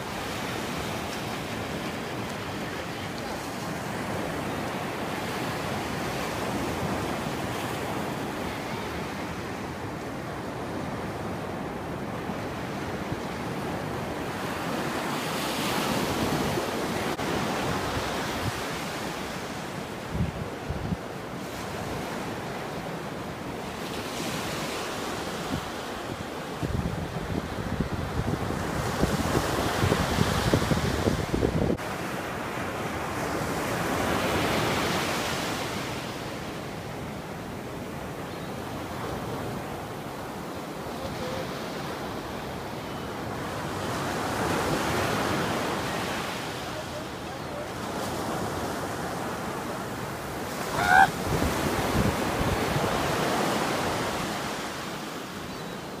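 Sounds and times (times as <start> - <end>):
wind buffeting microphone: 26.6 - 31.8.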